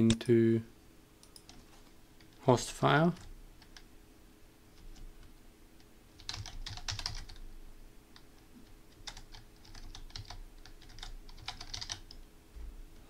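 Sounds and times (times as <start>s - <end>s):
computer keyboard typing: 1.2s - 1.6s, 3.0s - 3.9s, 6.2s - 7.4s, 8.9s - 12.2s.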